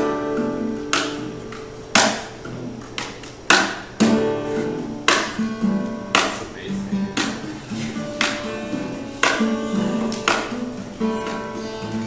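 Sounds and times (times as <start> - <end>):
acoustic guitar percussive strumming: 0.0 - 12.0.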